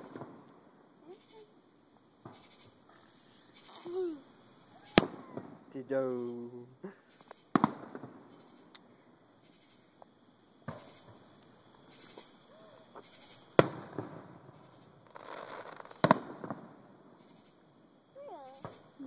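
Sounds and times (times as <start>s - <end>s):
fireworks bangs: 0.0s - 0.6s, 4.6s - 6.5s, 7.1s - 8.7s, 10.6s - 16.9s, 18.2s - 19.0s
fireworks crackling: 0.0s - 19.0s.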